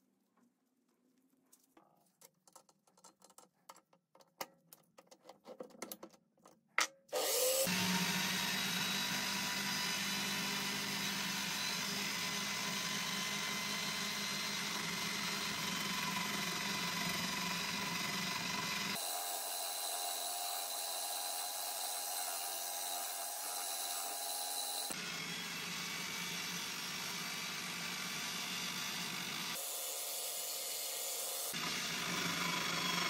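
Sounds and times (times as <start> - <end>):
power tool motor running: 7.1 - 33.0.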